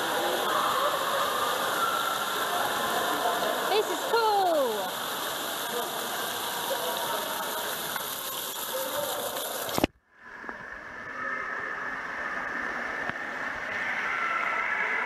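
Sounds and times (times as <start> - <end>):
distant running water: 0.0 - 9.9
fountain water splashing: 0.0 - 9.9.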